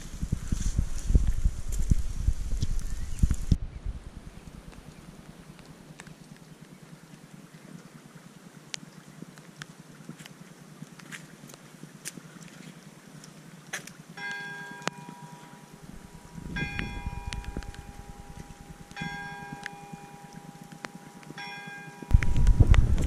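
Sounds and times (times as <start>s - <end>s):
tower bell ringing: 14.2s - 22.2s
loud low rumble: 15.8s - 19.1s, 22.1s - 23.0s.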